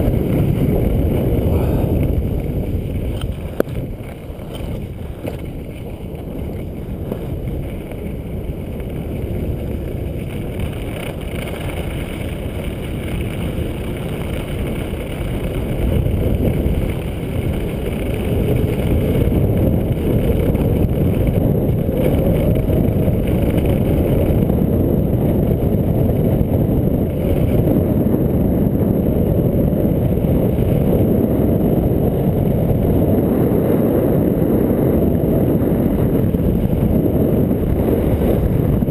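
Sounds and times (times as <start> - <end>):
wind buffeting microphone: 0.0 - 38.9.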